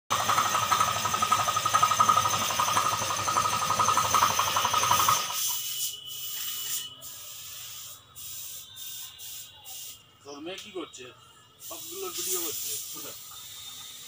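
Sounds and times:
machine pulsing drone: 0.1s - 5.5s
soft hiss: 11.6s - 14.0s.

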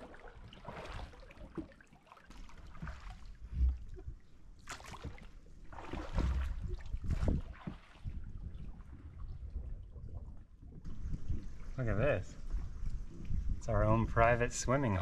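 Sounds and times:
splashy oar strokes: 0.0s - 9.5s
oars dipping and dripping: 0.0s - 15.0s.

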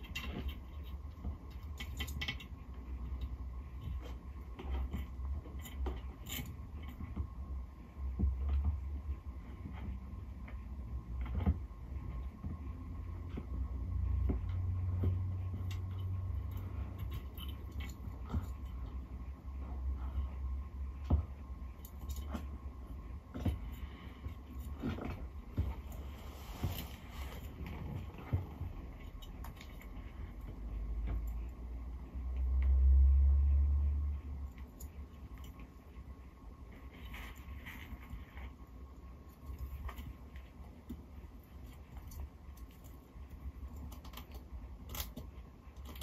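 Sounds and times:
low steady hum: 0.0s - 46.0s
low rumble: 7.3s - 35.4s
tortoise crunching bone: 36.8s - 46.0s.

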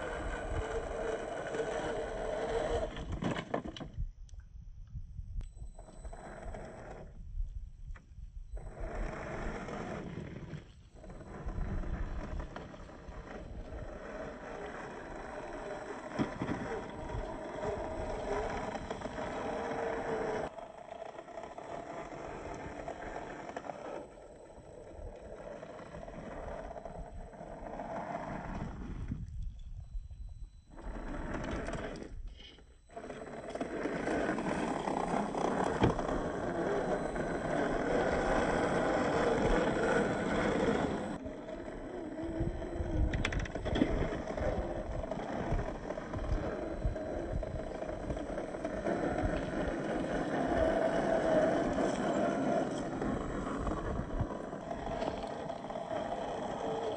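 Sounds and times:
electric motor whining: 8.6s - 56.9s.

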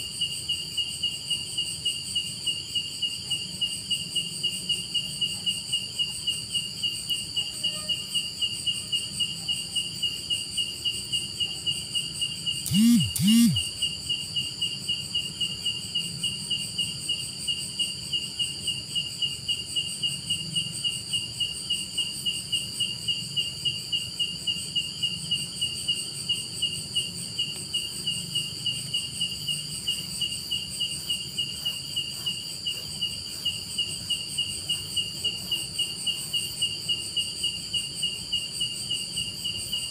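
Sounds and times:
insect chirping fast: 0.0s - 39.9s
high-pitched insect buzz: 6.1s - 10.2s, 12.0s - 15.0s, 22.8s - 39.9s.

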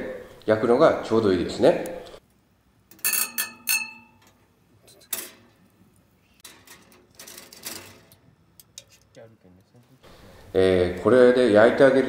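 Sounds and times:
wire grill clinking on metal: 2.9s - 5.6s.

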